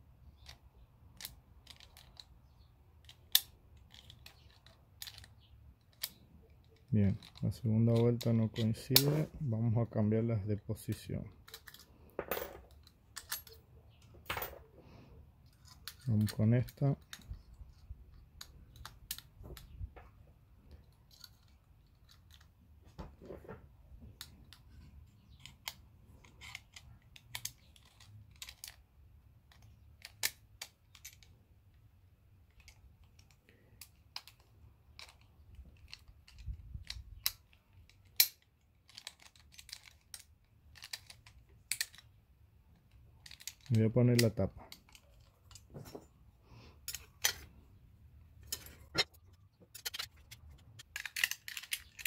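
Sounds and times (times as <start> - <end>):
metallic clicks of lock plates: 3.0 - 9.3, 12.6 - 14.4, 25.3 - 28.8, 32.5 - 42.1, 48.4 - 52.0.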